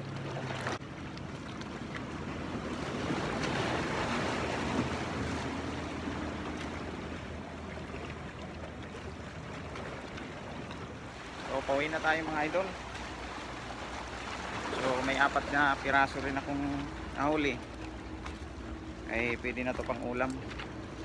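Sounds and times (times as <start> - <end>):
waves washing against rocks: 1.9 - 7.4, 11.0 - 17.7.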